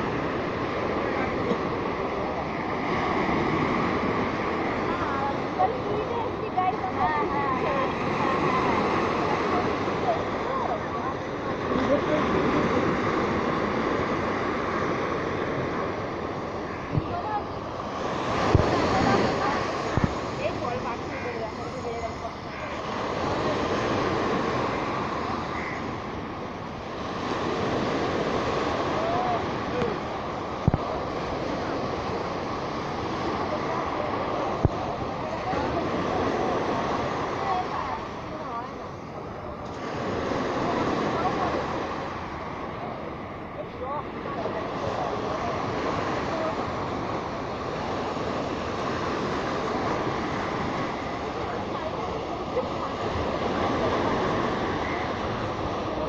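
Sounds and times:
river water washing along bank: 0:00.0 - 0:56.0
wind: 0:00.0 - 0:56.0
wind on microphone: 0:08.0 - 0:22.2, 0:26.2 - 0:38.2.

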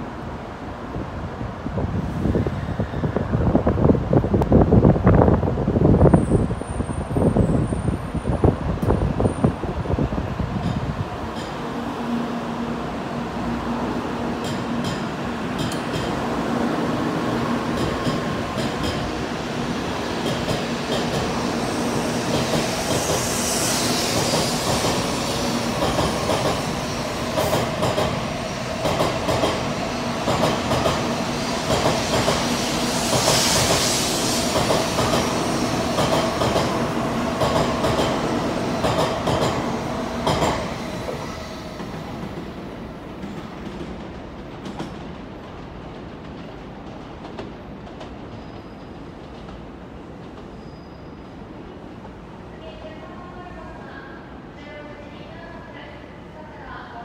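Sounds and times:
hiss: 0:20.3 - 0:28.0, 0:30.2 - 0:36.8.

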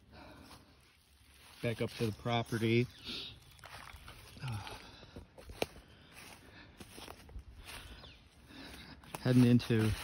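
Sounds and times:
footsteps on dry leaves: 0:00.0 - 0:10.0.

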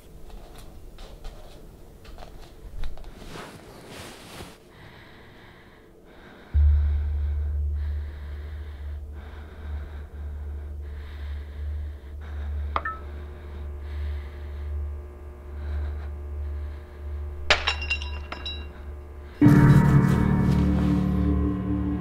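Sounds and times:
deep steady rumble: 0:06.5 - 0:17.6
held low note: 0:06.6 - 0:13.9, 0:19.4 - 0:22.0.

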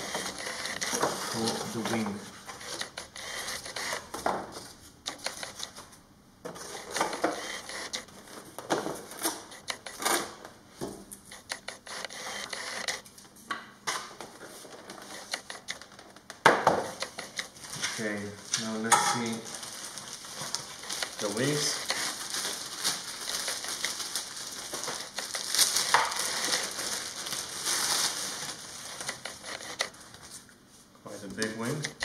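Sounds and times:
foam pieces tapping and scraping: 0:20.3 - 0:26.8.

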